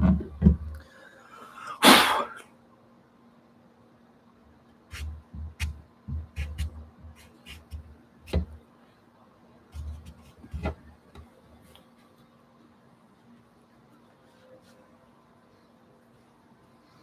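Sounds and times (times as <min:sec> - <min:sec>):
pastel tapping and scratching on paper: 0:04.9 - 0:08.6, 0:09.8 - 0:10.8.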